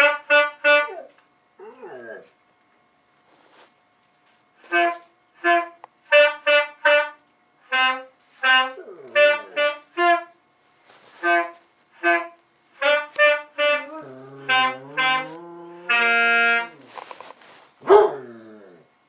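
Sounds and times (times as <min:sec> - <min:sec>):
saxophone playing: 0:00.0 - 0:01.1, 0:04.8 - 0:10.4, 0:11.0 - 0:17.1
dog baying: 0:13.6 - 0:17.2, 0:17.8 - 0:18.8.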